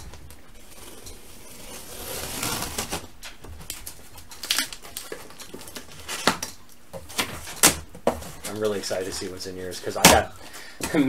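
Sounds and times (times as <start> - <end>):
packing tape scraping: 0.6 - 9.3.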